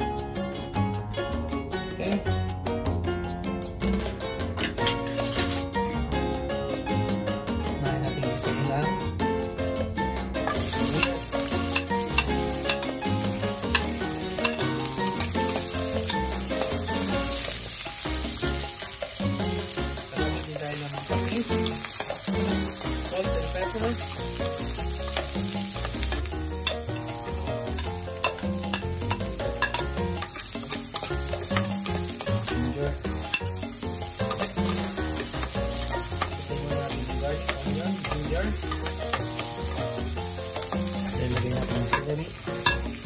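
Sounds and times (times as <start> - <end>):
onions sizzling in hot oil: 10.4 - 43.0
metal spoon scraping a wok: 10.5 - 17.8, 20.5 - 22.8, 27.7 - 43.0
spoon clicking against pan: 13.7 - 15.7, 27.8 - 32.6.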